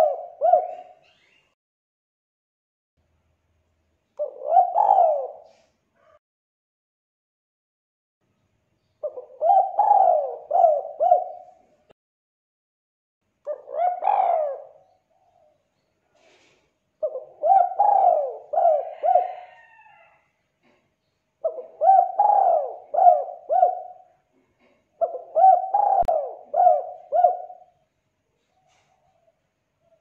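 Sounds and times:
dove cooing: 0.0 - 1.1, 4.2 - 6.2, 9.0 - 11.8, 13.5 - 15.6, 17.0 - 20.2, 21.4 - 27.8, 28.4 - 30.0.

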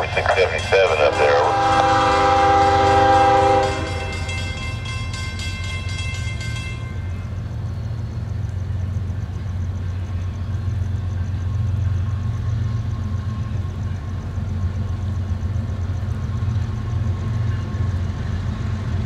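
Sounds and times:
locomotive horn chord: 0.0 - 4.6
diesel engine rumbling: 0.0 - 5.1.

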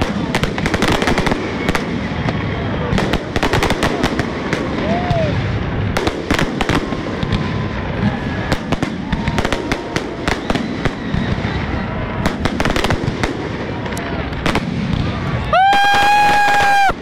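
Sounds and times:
continuous rumble: 0.0 - 15.9
crackling firework stars: 0.0 - 17.0
firework bangs: 0.0 - 17.0.

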